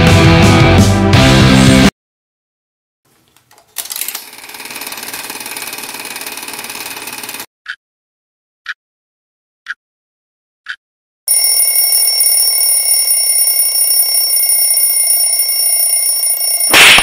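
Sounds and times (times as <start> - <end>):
alarm clock ticking: 10.7 - 17.0
alarm bell ringing: 11.3 - 17.0.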